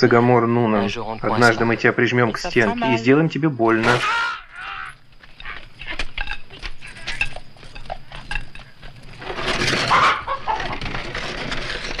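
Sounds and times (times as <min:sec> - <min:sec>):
chicken clucking: 0:04.0 - 0:11.0.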